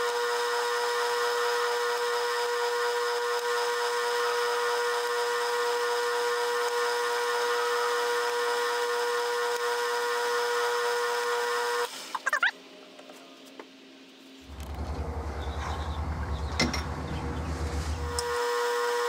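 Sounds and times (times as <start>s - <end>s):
metal lathe whining: 14.5s - 19.0s.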